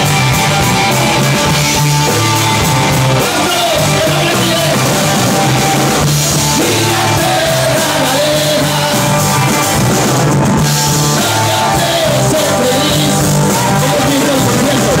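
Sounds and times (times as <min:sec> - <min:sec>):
drum kit: 0:00.0 - 0:15.0
electric guitar: 0:00.0 - 0:15.0
man singing: 0:03.2 - 0:05.1, 0:06.4 - 0:09.6, 0:11.0 - 0:15.0.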